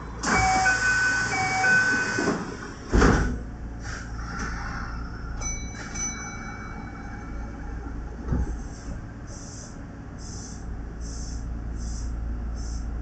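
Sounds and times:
sliding doors shutting thump: 0:00.2 - 0:03.4
air hiss from door engines: 0:03.8 - 0:04.9, 0:08.4 - 0:13.0
two-note door chime: 0:05.4 - 0:07.3.

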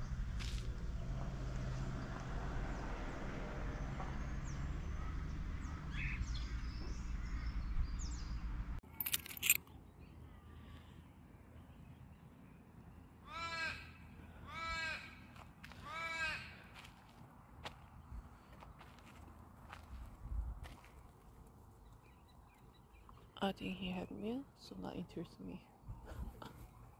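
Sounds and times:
crow cawing: 0:13.2 - 0:17.0.

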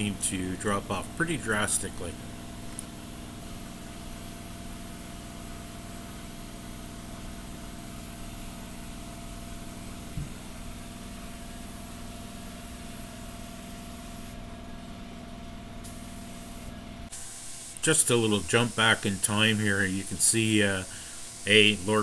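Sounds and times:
air hissing: 0:15.8 - 0:22.0.

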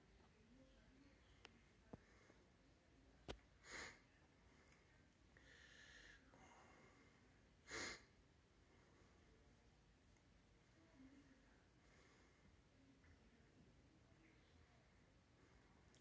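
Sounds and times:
short breaths close to microphone: 0:05.4 - 0:09.3.

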